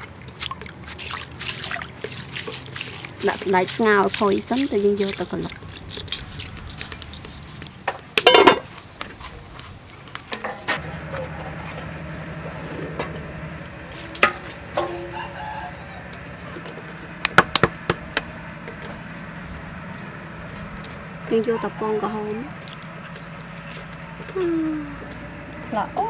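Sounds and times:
chickens clucking: 14.8s - 16.6s.

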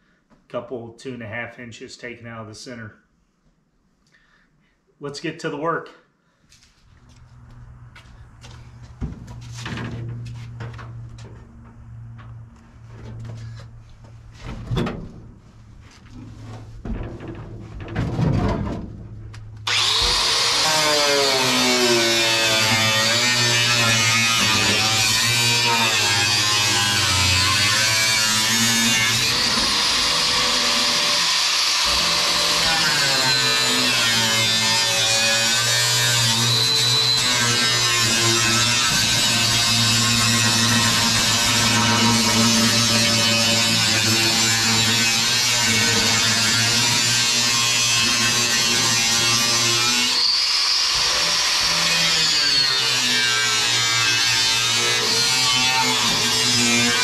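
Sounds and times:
angle grinder cutting metal: 19.6s - 57.0s.

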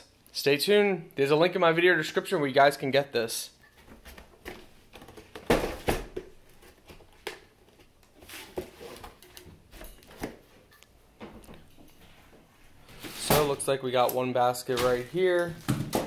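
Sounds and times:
box and plastic rustling: 3.7s - 10.6s, 14.7s - 16.0s.

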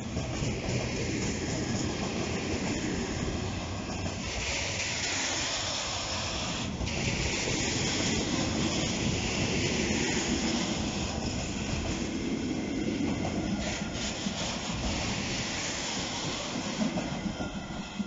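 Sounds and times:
train wheels rumbling on rail: 0.0s - 18.0s
rasping hissing noise: 1.3s - 17.4s.

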